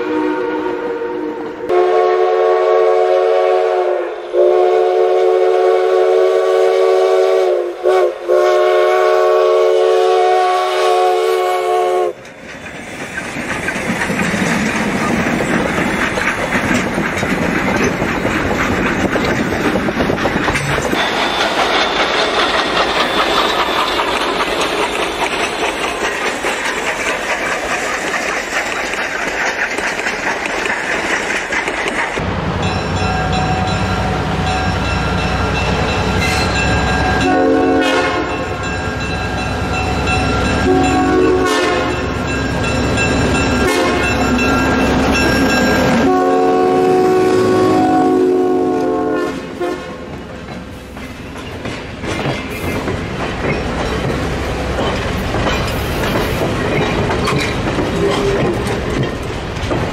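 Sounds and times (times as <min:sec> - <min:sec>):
train whistle blasts: 0:00.0 - 0:12.2, 0:33.1 - 0:42.2, 0:43.6 - 0:44.3, 0:45.8 - 0:50.0
deep train rumble: 0:00.0 - 0:59.9
train wheels clacking over rails: 0:11.0 - 0:59.9.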